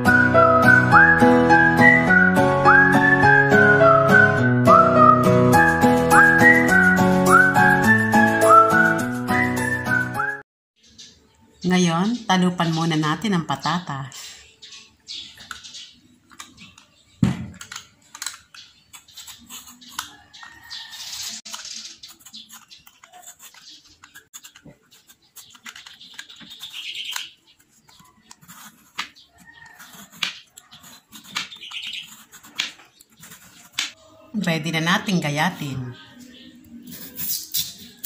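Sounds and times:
sharp knock: 17.2 - 17.6
peeler scraping potato skin: 17.6 - 34.0.

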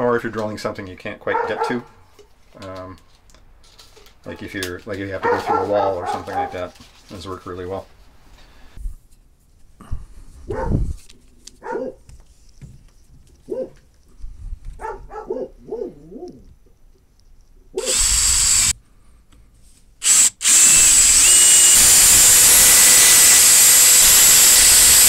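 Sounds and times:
cordless drill drilling wood: 17.8 - 18.8, 20.0 - 25.0.

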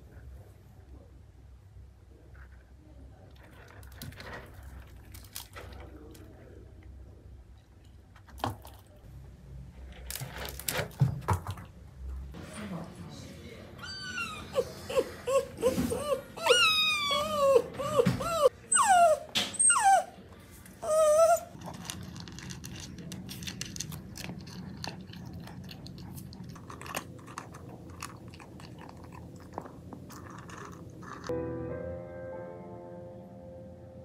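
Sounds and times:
kitten crunching dry kibble: 3.3 - 6.6, 21.5 - 31.3
dog whining and whimpering: 13.8 - 20.2, 20.8 - 21.7.

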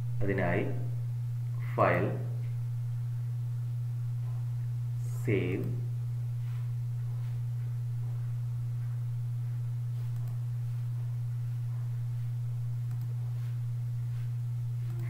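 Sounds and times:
low electrical hum: 0.0 - 15.0
faint mouse clicks: 10.1 - 10.4, 12.8 - 13.2.

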